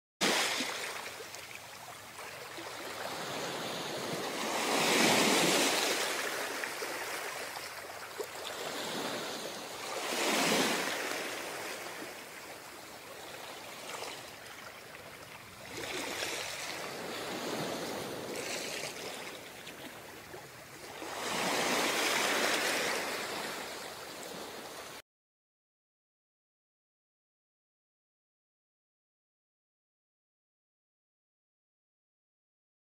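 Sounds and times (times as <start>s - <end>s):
ocean waves washing in: 0.2s - 1.4s, 2.1s - 14.8s, 15.6s - 25.0s.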